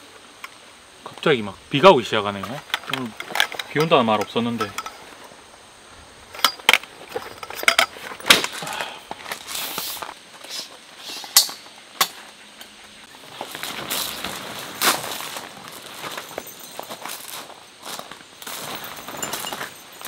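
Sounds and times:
tent pole sections clacking: 2.4s - 5.2s, 6.3s - 9.8s, 18.5s - 20.0s
bag rustling: 13.2s - 20.0s.

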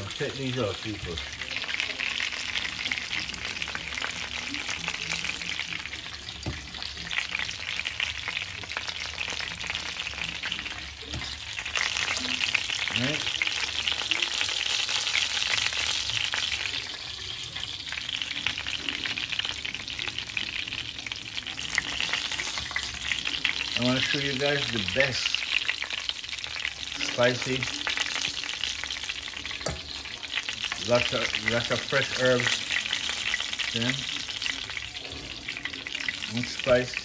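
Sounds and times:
chicken frying in hot oil: 0.0s - 37.0s.

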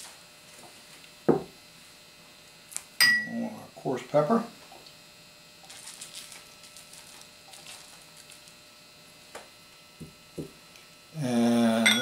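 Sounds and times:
glassware knocks on table: 1.3s - 1.5s.

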